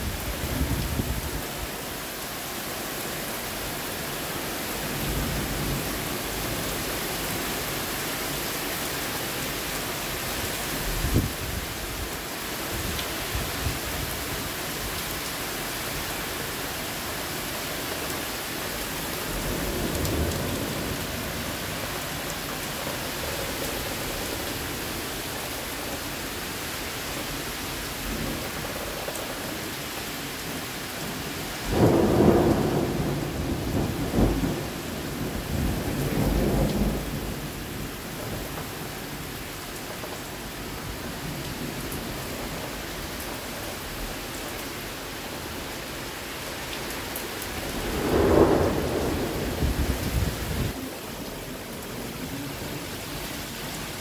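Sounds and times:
heavy rain pouring: 0.0s - 54.0s
thunder rumbling: 31.6s - 38.9s, 47.5s - 51.1s.

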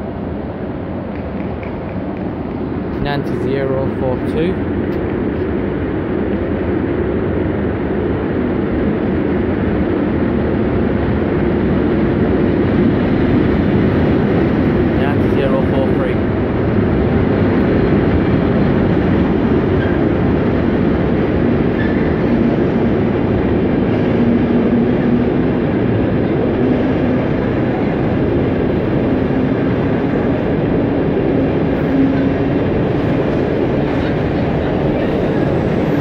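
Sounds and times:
freight train wheels on rails: 0.0s - 36.0s.

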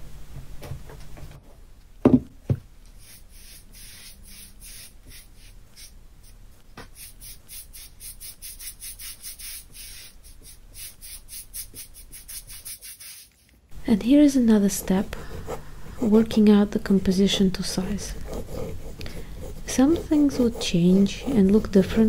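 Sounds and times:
board knocking on table: 2.0s - 2.6s
brush scratching across board: 3.0s - 13.5s, 18.0s - 22.0s.

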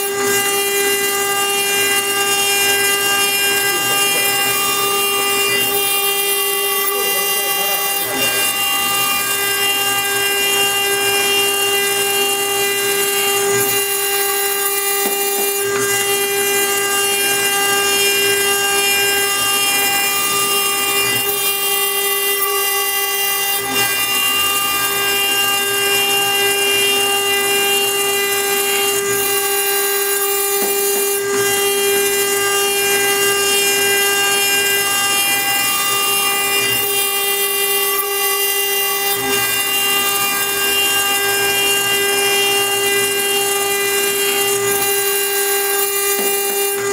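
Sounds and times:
bit grinding into stone: 0.0s - 46.9s
router spindle high whine: 0.0s - 46.9s.

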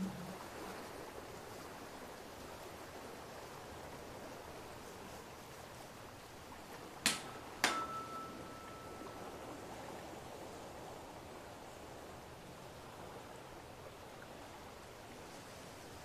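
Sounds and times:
faint steady hiss: 0.0s - 16.0s
tuning forks struck and ringing: 7.6s - 9.3s.

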